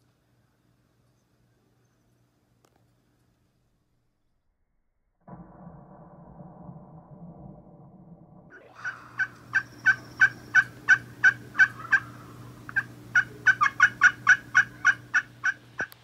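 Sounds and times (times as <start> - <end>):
wild turkey yelping: 8.6 - 16.0.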